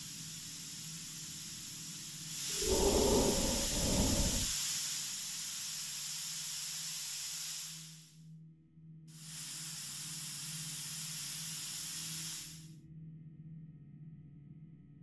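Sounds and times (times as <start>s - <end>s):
steady hiss: 0.0s - 8.2s, 9.2s - 12.7s
deep rushing noise: 2.5s - 4.5s.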